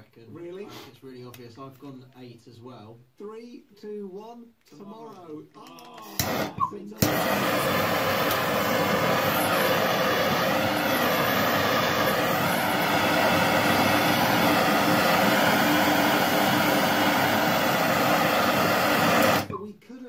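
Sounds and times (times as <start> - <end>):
gas torch flame roaring: 6.2 - 19.5.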